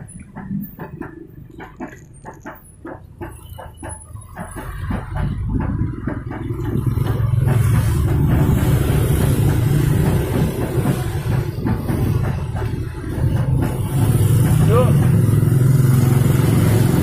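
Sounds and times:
motorcycle engine running: 1.6 - 17.0
passing motorbikes rumble: 12.9 - 17.0.

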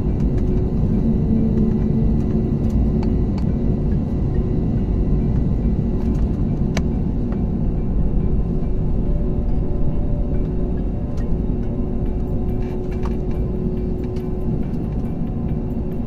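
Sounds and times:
faint hum: 0.0 - 16.0
low rumble of jet engines: 0.0 - 16.0.

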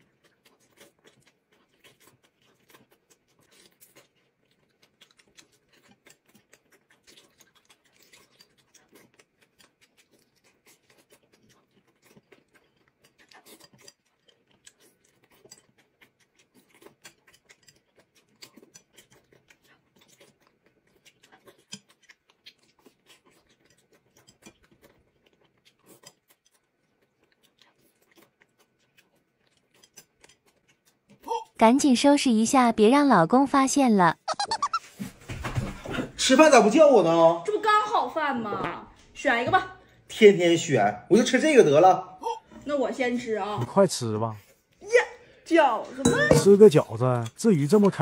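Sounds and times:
quiet chewing: 0.0 - 32.5, 37.4 - 40.2, 42.2 - 48.0
small clicks and smacks: 0.6 - 31.3.

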